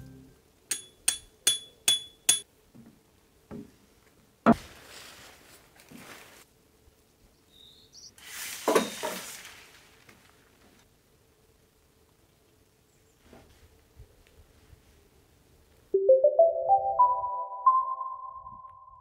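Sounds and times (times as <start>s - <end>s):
tarp fabric rustling: 4.5s - 6.5s, 8.2s - 10.8s.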